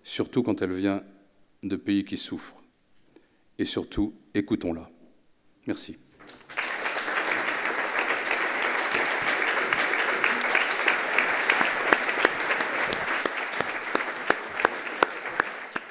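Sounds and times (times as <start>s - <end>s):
audience applauding: 6.2s - 15.9s.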